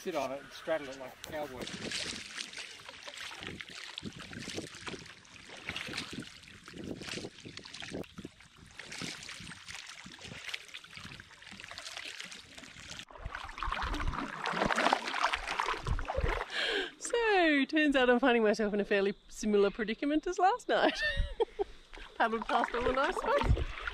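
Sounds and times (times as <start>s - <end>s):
paddle splashing in water: 0.1s - 16.7s, 21.9s - 23.9s
wind rumble on microphone: 3.3s - 10.4s, 15.7s - 16.4s, 22.8s - 23.9s.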